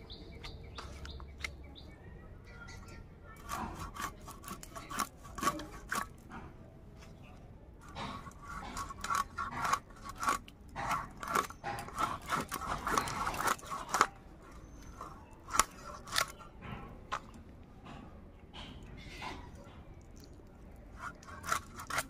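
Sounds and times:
blade cutting through fish: 0:03.4 - 0:06.3, 0:07.8 - 0:16.6, 0:20.9 - 0:22.0.

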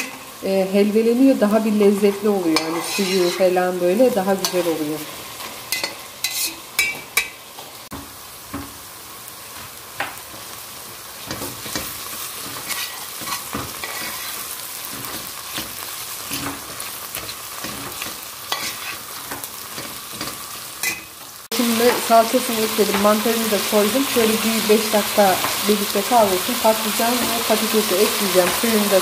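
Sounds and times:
vegetables sizzling in a pot: 0:00.0 - 0:29.0
metal spoon scraping a pot: 0:02.6 - 0:03.5, 0:05.7 - 0:07.0, 0:11.7 - 0:14.4, 0:17.2 - 0:19.0.

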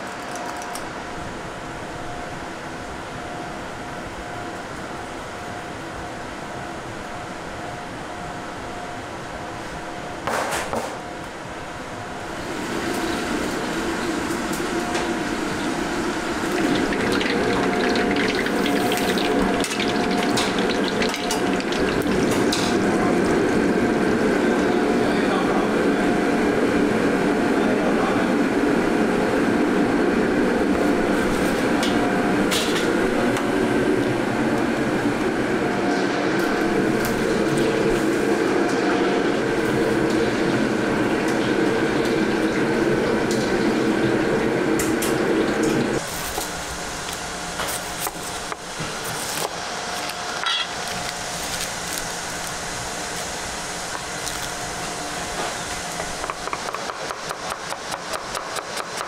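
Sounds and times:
low kitchen roar: 0:00.0 - 0:59.0
oil bubbling and sizzling: 0:12.2 - 0:23.6, 0:39.6 - 0:48.8.

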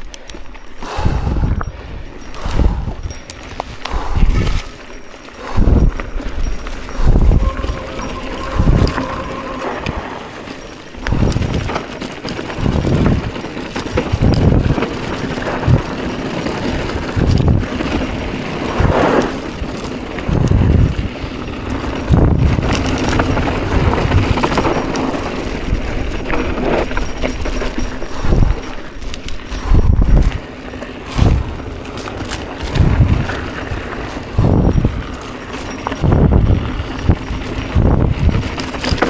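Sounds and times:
bike rattling over bumps: 0:00.0 - 0:39.0
bike tyres on loose dirt: 0:00.0 - 0:39.0
low rumbling surges: 0:05.5 - 0:11.4.

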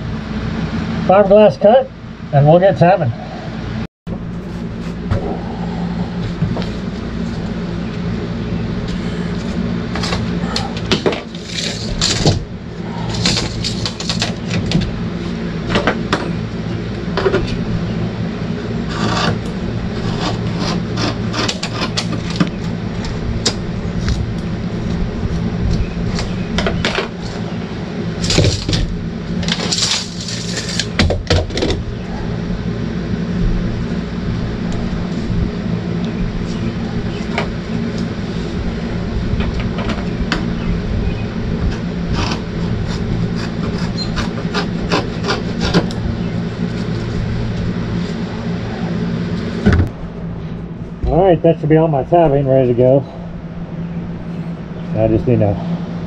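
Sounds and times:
low hum: 0:00.0 - 0:56.0.

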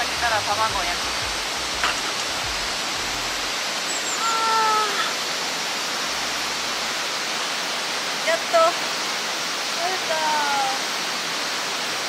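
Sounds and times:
flowing stream water: 0:00.0 - 0:12.0
woman exclaiming: 0:04.2 - 0:05.2, 0:09.8 - 0:10.8.

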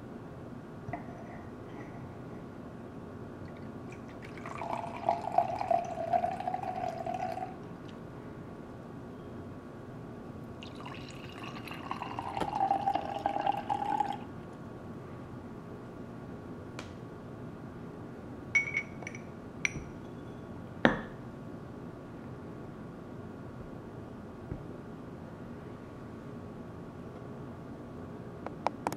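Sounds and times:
wine pouring into glass: 0:03.5 - 0:07.6, 0:10.6 - 0:14.3.

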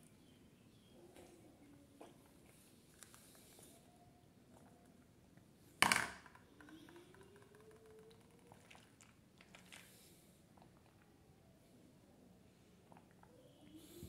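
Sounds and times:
plastic cup clacking on table: 0:05.8 - 0:06.4.

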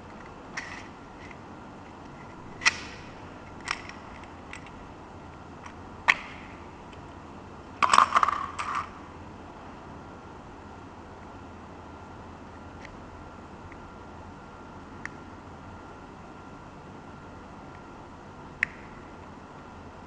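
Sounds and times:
sharp plastic clicks: 0:18.6 - 0:19.0.

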